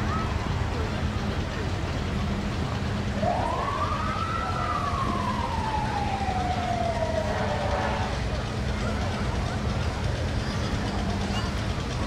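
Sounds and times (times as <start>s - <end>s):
low hum and rumble: 0.0s - 12.0s
siren wailing: 3.2s - 8.0s.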